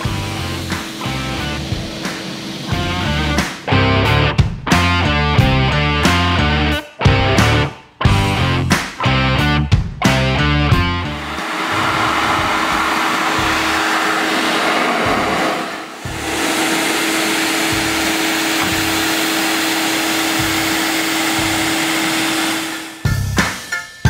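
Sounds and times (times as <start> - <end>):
pressure washer jet hissing: 0.0 - 3.7, 11.1 - 23.0
motor hum: 0.0 - 4.2, 10.9 - 23.1.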